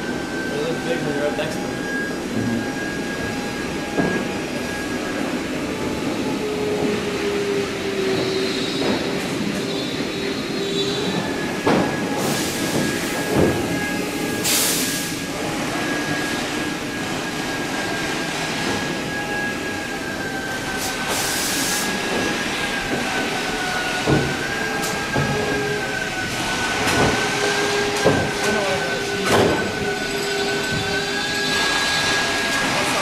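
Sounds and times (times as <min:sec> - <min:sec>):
factory din: 0:00.0 - 0:33.0
steady machine whine: 0:00.0 - 0:33.0
knocks and clanks: 0:11.0 - 0:14.0, 0:22.0 - 0:30.0.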